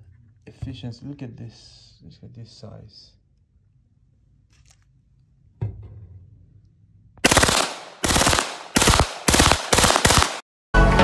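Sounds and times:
submachine gun firing bursts: 7.2 - 10.4.

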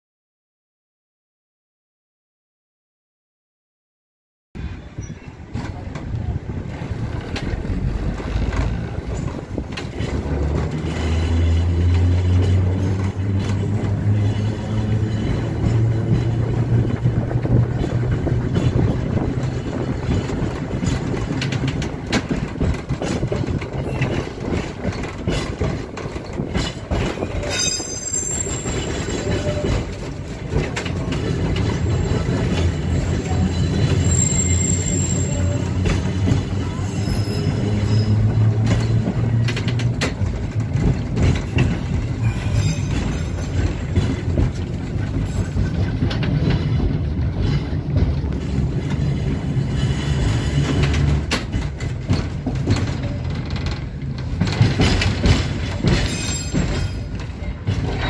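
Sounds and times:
streetcar motor hum: 4.6 - 58.0
wheels rattling on rails: 4.6 - 58.0
short high squeals: 27.4 - 29.6, 34.0 - 35.8.

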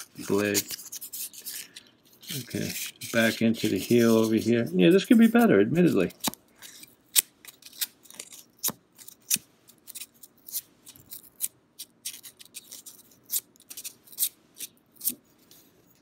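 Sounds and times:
sandpaper scratching steel blade: 2.2 - 6.9.

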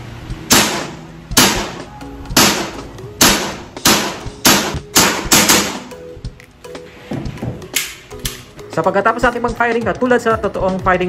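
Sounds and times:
airsoft pistol shots: 0.5 - 1.8, 2.4 - 5.9.

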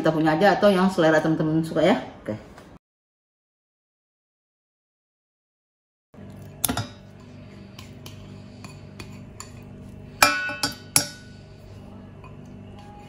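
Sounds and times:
spatula clinking in pan: 8.6 - 11.3.

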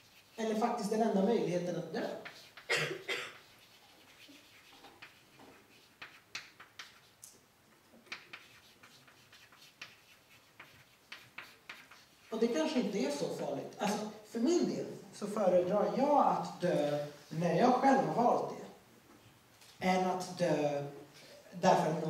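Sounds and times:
chalk tapping and scratching on blackboard: 0.0 - 1.2, 2.0 - 12.8.

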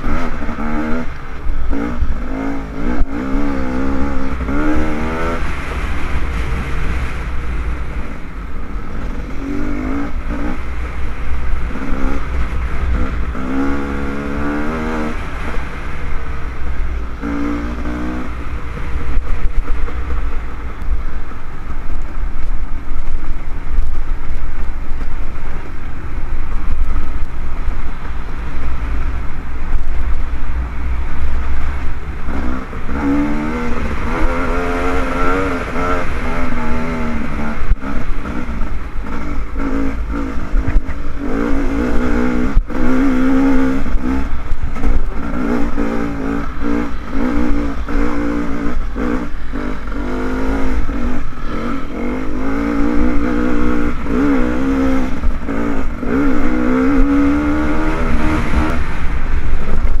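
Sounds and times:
dirt bike engine revving: 0.0 - 16.3, 17.0 - 20.6, 31.9 - 59.8
wind rumble on microphone: 0.0 - 60.0.

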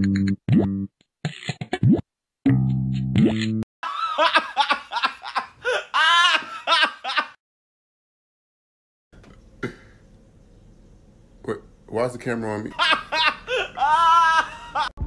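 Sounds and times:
person laughing in high pitch: 3.8 - 7.4, 12.8 - 15.0.

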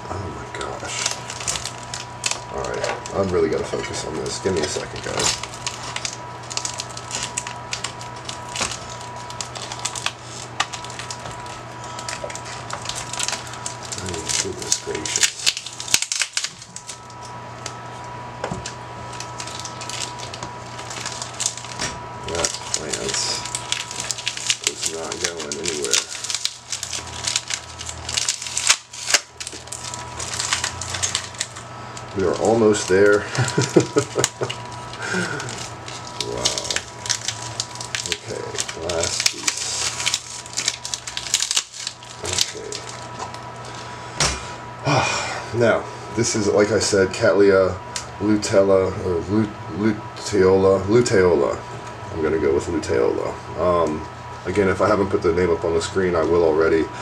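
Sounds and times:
faint steady hum: 0.0 - 57.0
plastic packing crinkling: 0.4 - 44.1.

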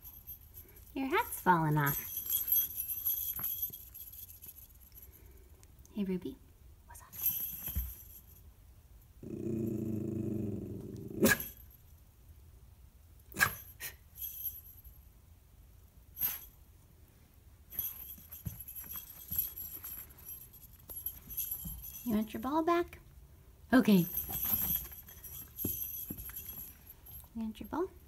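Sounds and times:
small bells jingling: 0.0 - 5.5, 6.9 - 8.5, 13.6 - 15.1, 17.7 - 23.0, 23.7 - 28.0
dog growling: 9.2 - 11.4.

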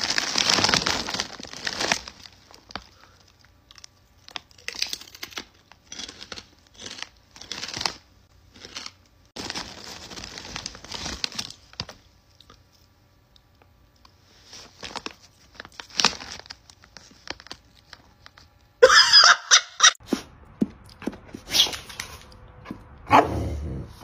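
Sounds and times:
plastic chip bag crinkling: 0.0 - 18.7.

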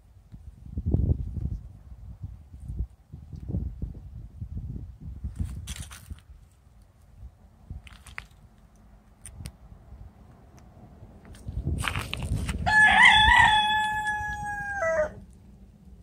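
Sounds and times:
rustling noise: 5.2 - 9.4, 11.2 - 12.7
rooster crowing: 12.6 - 15.2.

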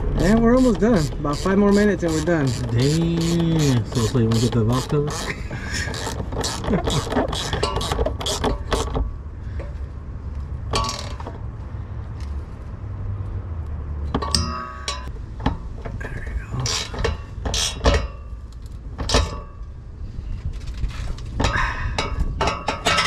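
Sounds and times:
socket wrench on metal: 0.0 - 9.1, 10.7 - 11.3, 16.6 - 18.3, 19.0 - 19.5, 21.4 - 23.0
metallic clinks and knocks: 10.7 - 11.4, 14.1 - 16.0, 21.4 - 23.0.

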